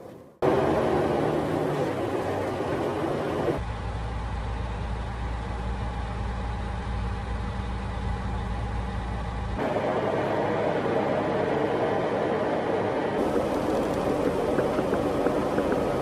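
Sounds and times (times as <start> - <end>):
truck engine droning: 0.0 - 16.0
steady rushing noise: 9.6 - 16.0.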